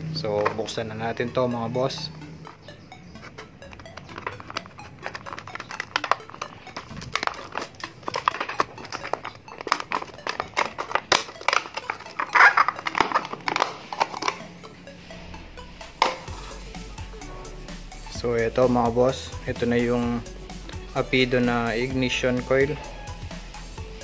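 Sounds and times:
background music: 0:00.0 - 0:24.0
plastic packaging crackling: 0:03.8 - 0:14.4
scissors cutting plastic: 0:04.1 - 0:14.4.

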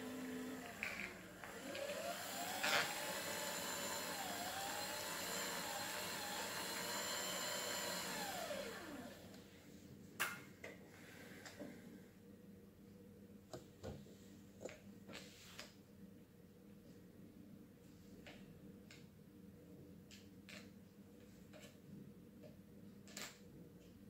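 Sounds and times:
electric motor whining: 0:00.0 - 0:09.2.

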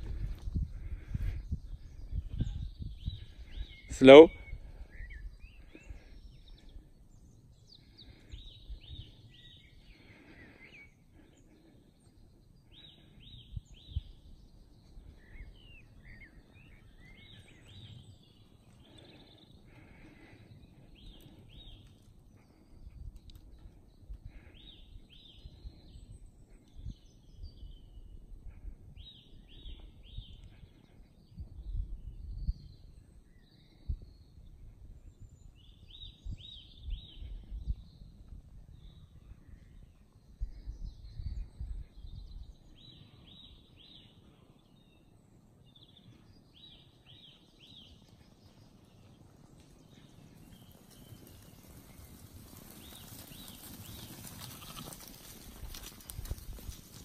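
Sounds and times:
wind rumble on microphone: 0:00.0 - 0:03.9, 0:13.2 - 0:16.0, 0:22.7 - 0:42.9, 0:50.0 - 0:57.0
songbirds singing: 0:00.0 - 0:57.0.

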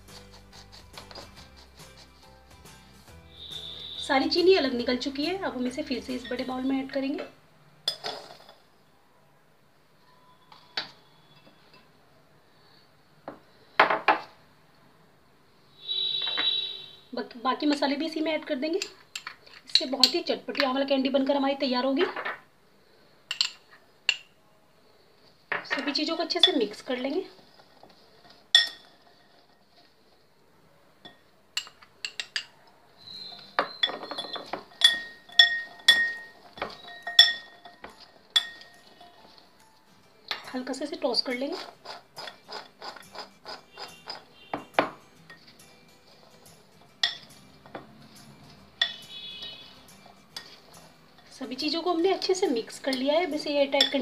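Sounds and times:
glass bowl clinking: 0:06.0 - 0:06.6, 0:28.5 - 0:29.4, 0:31.0 - 0:32.6, 0:33.5 - 0:39.4, 0:42.2 - 0:51.3, 0:53.8 - 0:54.0.

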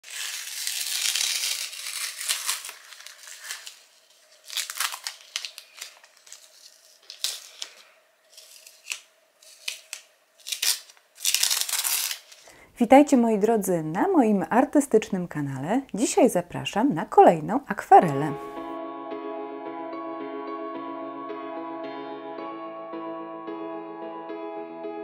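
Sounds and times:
masking tape ripping off paper: 0:00.0 - 0:12.5
paper crinkling: 0:00.0 - 0:12.6.

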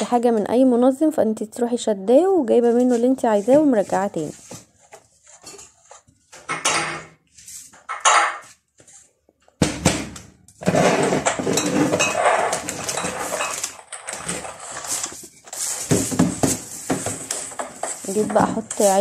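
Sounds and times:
storage containers clinking and rattling: 0:09.7 - 0:19.0.

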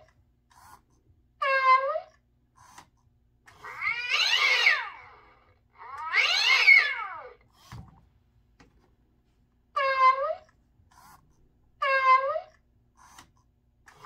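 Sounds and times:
recorded cat yowls through speaker: 0:01.4 - 0:02.1, 0:03.5 - 0:07.4.

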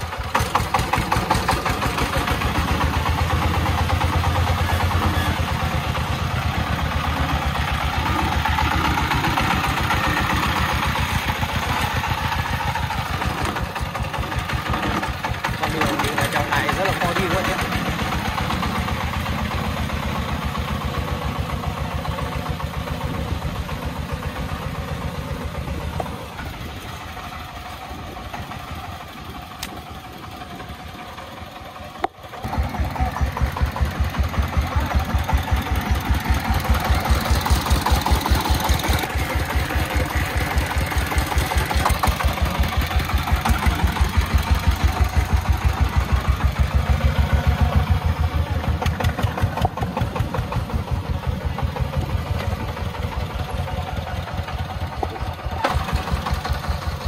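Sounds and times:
diesel engine chugging: 0:00.0 - 0:57.0.

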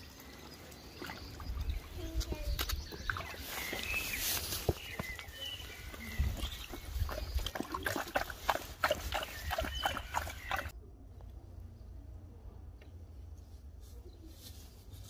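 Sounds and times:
dog splashing in water: 0:02.9 - 0:04.0, 0:06.6 - 0:10.7.

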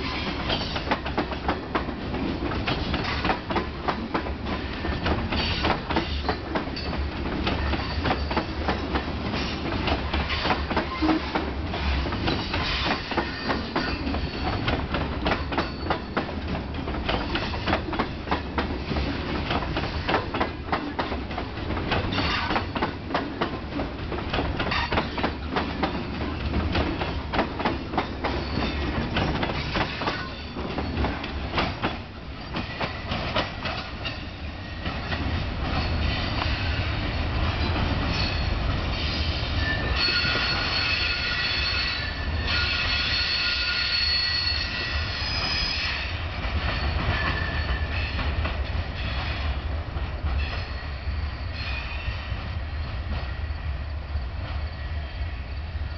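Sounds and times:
train wheels clacking: 0:00.0 - 0:50.9
wheels squealing on rails: 0:04.5 - 0:18.1, 0:22.1 - 0:22.9, 0:24.6 - 0:49.6, 0:50.3 - 0:53.2.

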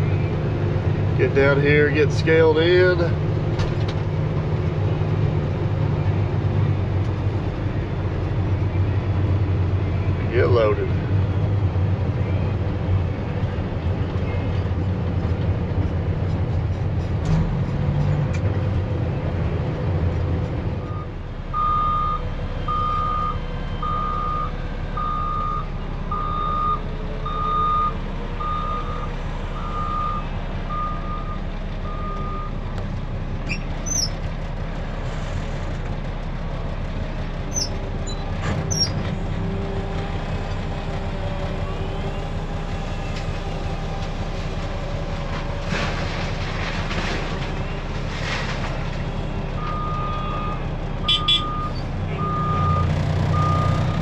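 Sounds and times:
diesel engine idling: 0:00.0 - 0:54.0
backup alarm beeping: 0:21.6 - 0:29.0.

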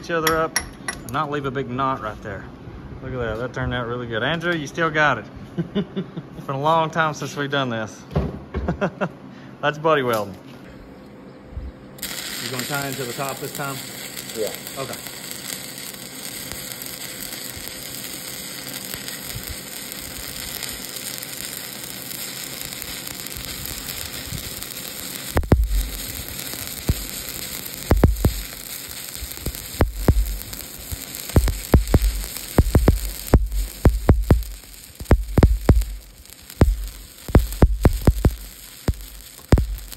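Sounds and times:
welding arc crackling sizzle: 0:12.0 - 0:39.9
sharp pops with low thumps: 0:25.4 - 0:25.9, 0:27.9 - 0:28.5, 0:29.4 - 0:30.4, 0:31.4 - 0:36.0, 0:36.6 - 0:39.9.

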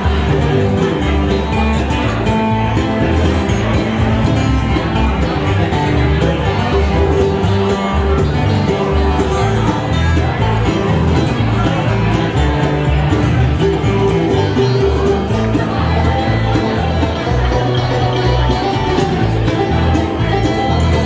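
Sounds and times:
bluegrass band playing: 0:00.0 - 0:21.0.

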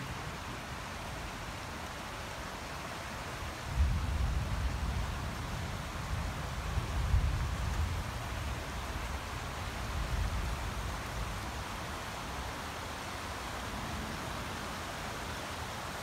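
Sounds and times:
floodwater rushing: 0:07.5 - 0:16.0.

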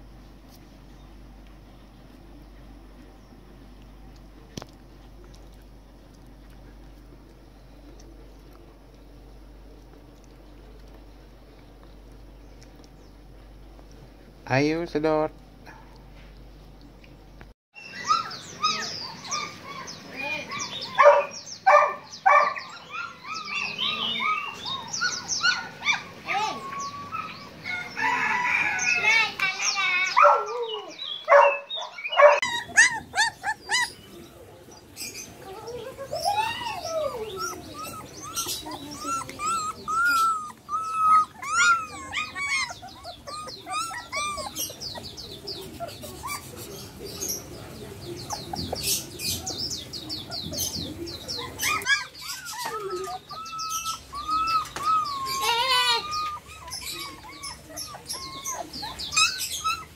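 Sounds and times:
puppy whining and squeaking: 0:17.8 - 0:21.0, 0:22.7 - 0:27.6, 0:32.1 - 0:34.2, 0:36.1 - 0:47.5, 0:48.1 - 0:59.9.

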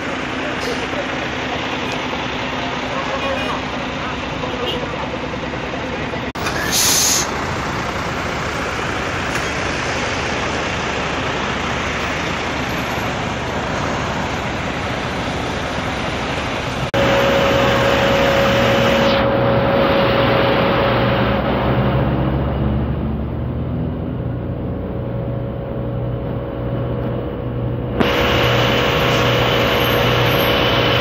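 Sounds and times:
heavy trucks rumbling: 0:00.0 - 0:31.0
high hiss: 0:06.6 - 0:07.4
steady whine: 0:07.7 - 0:31.0.

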